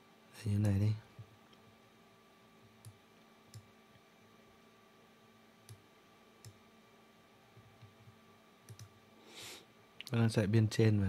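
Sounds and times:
computer mouse clicks: 0:02.8 - 0:03.7, 0:05.6 - 0:05.8, 0:06.4 - 0:06.6, 0:08.7 - 0:08.9.

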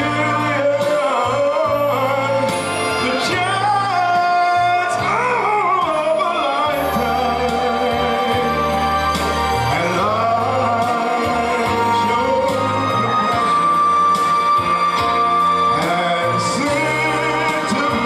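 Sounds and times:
instrumental backing track: 0:00.0 - 0:18.0
man singing into a microphone: 0:00.0 - 0:18.0.

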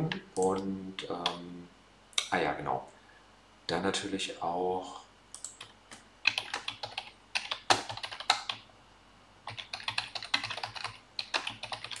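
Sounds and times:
typing on computer keyboard: 0:05.4 - 0:08.6, 0:09.5 - 0:12.0.

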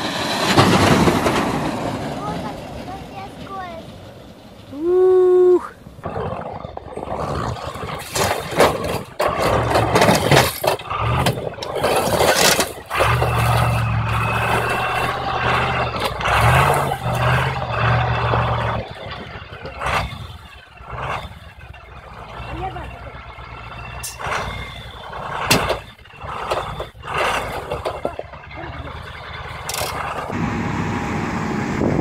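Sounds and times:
churned water and ice rushing: 0:00.0 - 0:04.1, 0:07.9 - 0:23.4
truck diesel engine under load: 0:00.0 - 0:32.0.

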